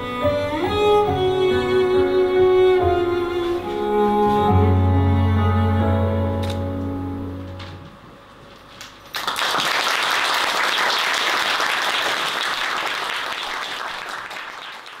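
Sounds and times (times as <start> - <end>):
audience applauding: 9.1 - 15.0.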